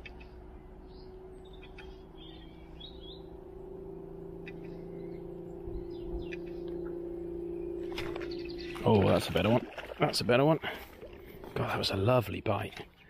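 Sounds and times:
small birds chirping: 0.0 - 9.4
steady low hum: 0.0 - 13.0.

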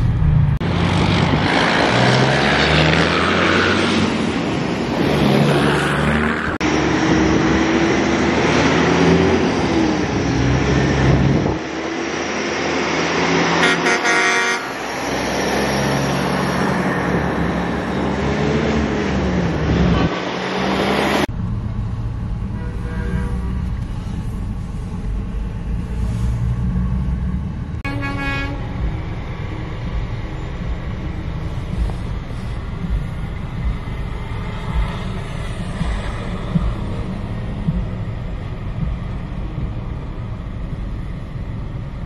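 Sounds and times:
diesel trucks driving past: 0.0 - 42.0
air horn blasts: 13.6 - 14.9, 22.5 - 23.6, 27.8 - 28.8.

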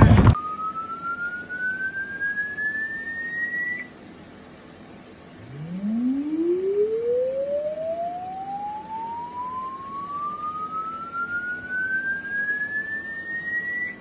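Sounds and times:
thin whistle-like rising tone: 0.4 - 4.0, 5.4 - 14.0
lower upward-sweeping tone: 5.4 - 14.0.

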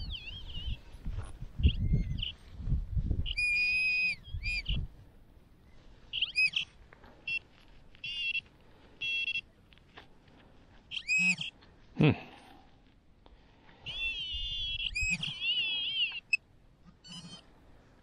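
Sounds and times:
metal detector beeps and tones: 3.3 - 4.8, 6.1 - 9.6.

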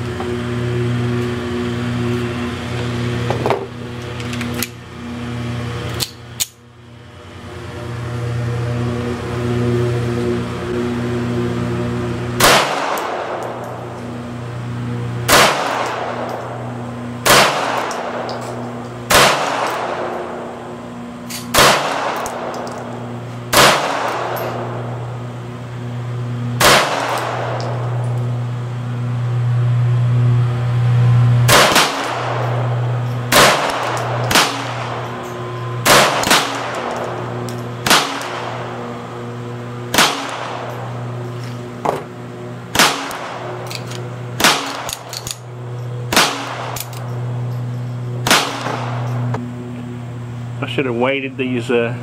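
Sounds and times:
low hum: 0.0 - 52.0
pistol shots: 12.4 - 13.5, 15.3 - 16.4, 17.2 - 20.3, 21.4 - 22.8, 23.5 - 24.6, 26.6 - 27.9, 31.5 - 35.1, 35.8 - 38.8, 39.9 - 40.8, 42.7 - 45.4, 46.1 - 47.1, 48.2 - 49.1.

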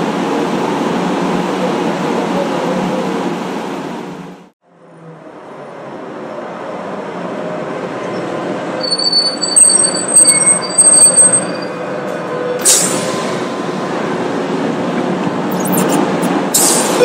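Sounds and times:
tram running on rails: 0.0 - 17.0
tram wheels squealing: 7.9 - 13.4.

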